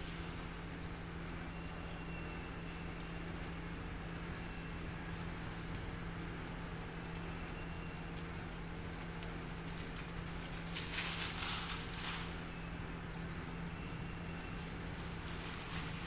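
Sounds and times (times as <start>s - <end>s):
dry crackling rustle: 0.0s - 16.0s
steady low hum: 0.0s - 16.0s.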